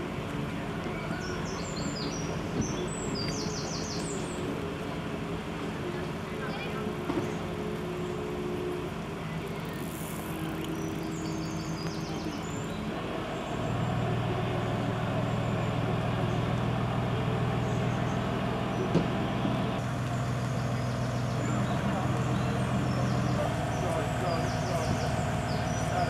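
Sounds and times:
engine humming: 0.0 - 26.0.

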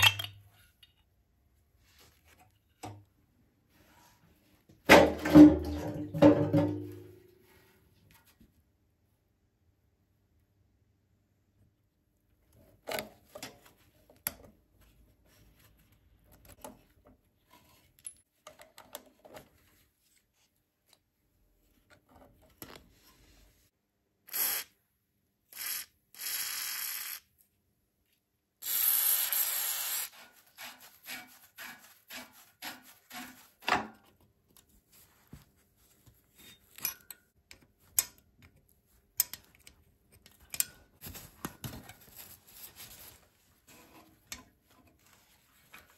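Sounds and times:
aerosol spray can hissing: 28.6 - 30.1.

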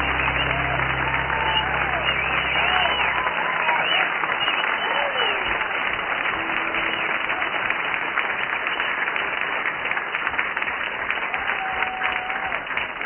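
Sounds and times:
faint held note: 0.0 - 3.5
audience applauding: 0.0 - 13.0.

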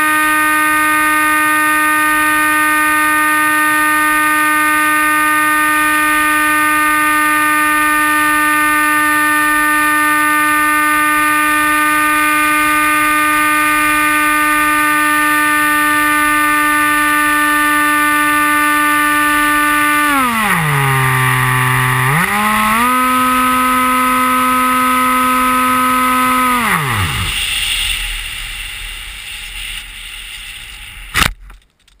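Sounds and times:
model aircraft motor whine: 0.0 - 31.6
rush of air: 27.3 - 31.4.

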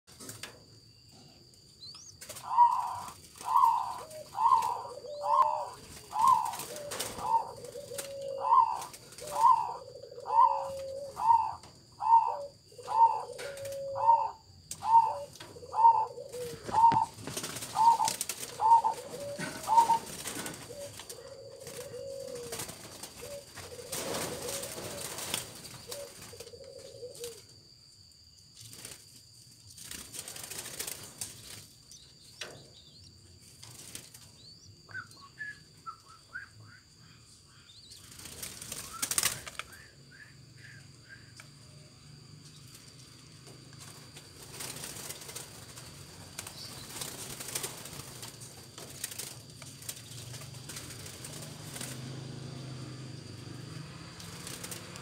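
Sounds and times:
wing flutter: 2.2 - 12.2, 12.8 - 27.5, 28.5 - 34.5, 37.9 - 40.0, 42.4 - 55.0
dove cooing: 2.2 - 27.6.

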